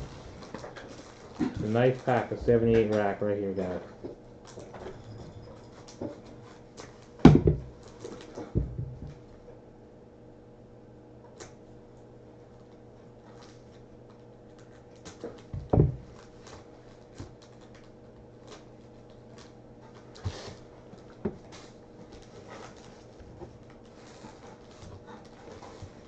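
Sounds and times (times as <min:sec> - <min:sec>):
cellophane wrapper crinkling: 0:00.0 - 0:03.8, 0:07.8 - 0:08.4, 0:13.3 - 0:15.5, 0:16.1 - 0:20.2
faint steady hum: 0:00.0 - 0:26.0.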